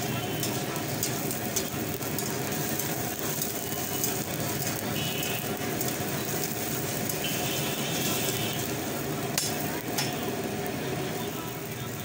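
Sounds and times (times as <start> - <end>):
food sizzling in a pan: 0.0 - 12.0
gas burner running: 0.0 - 12.0
metal utensils clicking and scraping: 0.2 - 4.9.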